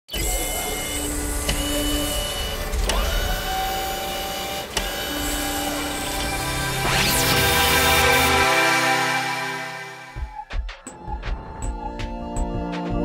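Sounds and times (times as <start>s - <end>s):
small machine whirring: 0.1s - 8.4s.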